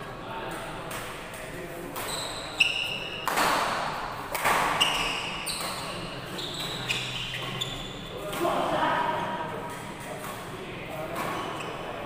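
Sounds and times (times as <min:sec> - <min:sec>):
sneakers squeaking on court: 0:02.0 - 0:03.5, 0:04.4 - 0:08.2, 0:11.1 - 0:12.0
rackets hitting shuttlecock: 0:03.2 - 0:05.9.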